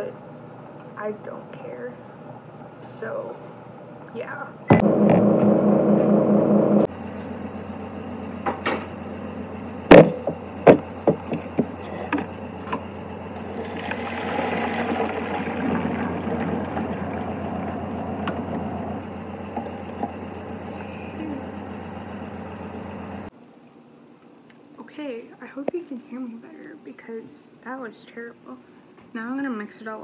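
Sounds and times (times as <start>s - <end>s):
water pouring into colander: 13.4s - 18.8s.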